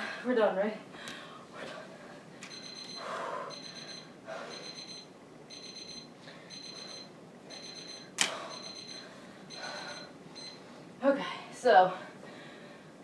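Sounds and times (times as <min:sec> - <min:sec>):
digital timer alarm beeping: 0:02.5 - 0:10.6
person breathing: 0:02.9 - 0:04.8, 0:08.2 - 0:10.2, 0:11.2 - 0:13.0.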